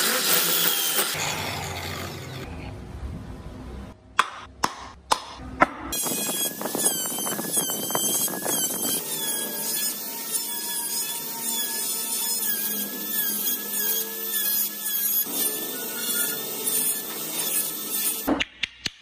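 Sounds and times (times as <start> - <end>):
rotary tool motor whine: 6.0 - 18.3.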